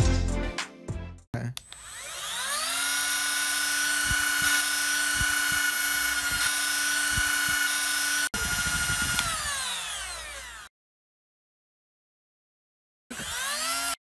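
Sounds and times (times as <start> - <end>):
angle grinder whining: 1.6 - 10.7, 13.1 - 14.0.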